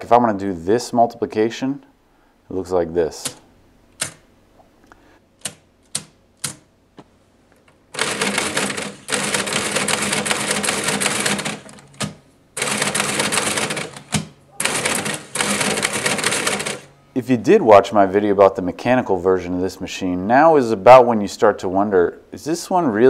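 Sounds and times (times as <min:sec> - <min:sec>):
adding machine key clicks: 0:04.0 - 0:04.2.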